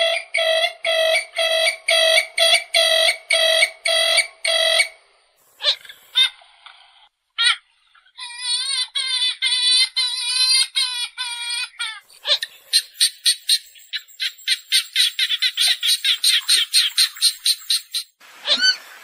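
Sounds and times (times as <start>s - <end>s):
swamphen calling: 0.0s - 5.0s, 5.6s - 6.3s, 12.0s - 18.9s.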